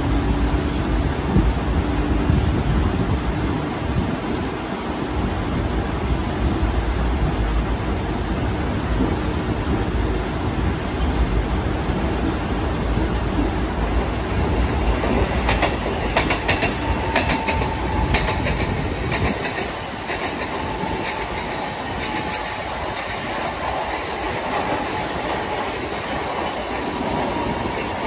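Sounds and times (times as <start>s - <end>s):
train rumbling along track: 0.0s - 28.0s
wheels clicking over rail joints: 11.9s - 28.0s.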